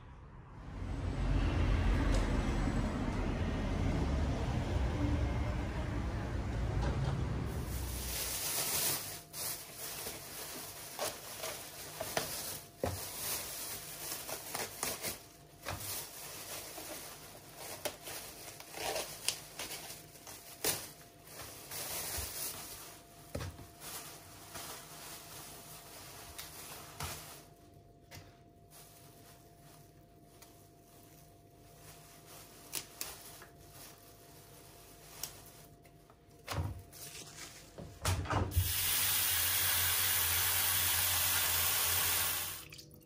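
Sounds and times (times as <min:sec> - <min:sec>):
plastic bags rustling and crinkling: 0:07.4 - 0:38.0.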